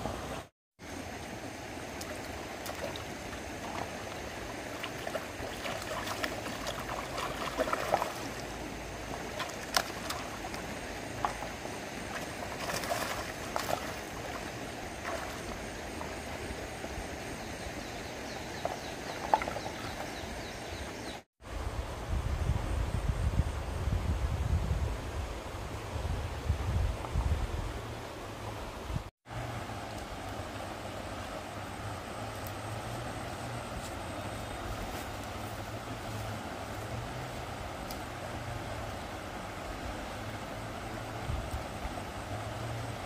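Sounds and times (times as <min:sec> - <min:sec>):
stream water gurgling: 0:00.0 - 0:22.2, 0:24.0 - 0:43.0
short sharp splashes: 0:12.1 - 0:15.6.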